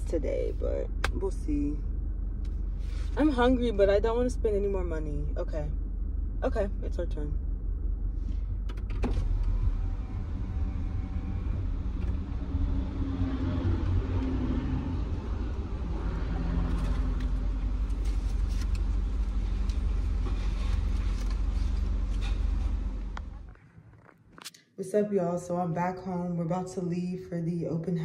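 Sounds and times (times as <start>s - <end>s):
car engine idling: 0.0s - 23.6s.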